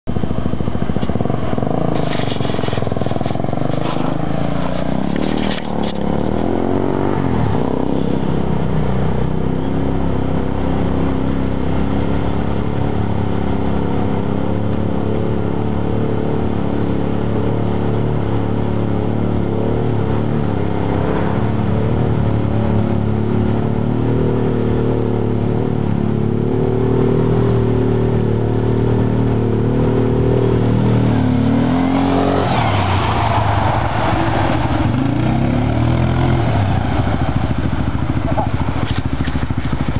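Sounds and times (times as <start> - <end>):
atv engine running: 0.0 - 39.9
vehicle churning through water: 11.5 - 39.9.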